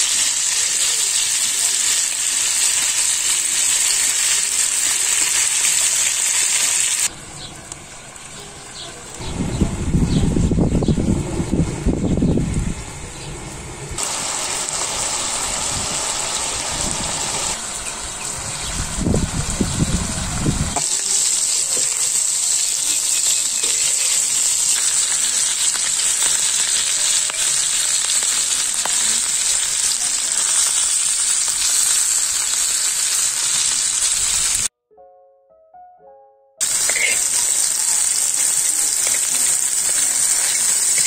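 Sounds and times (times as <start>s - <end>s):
meat sizzling in oil: 0.0s - 7.1s, 14.0s - 34.7s, 36.6s - 41.0s
wood fire burning: 13.9s - 34.7s, 36.6s - 41.0s.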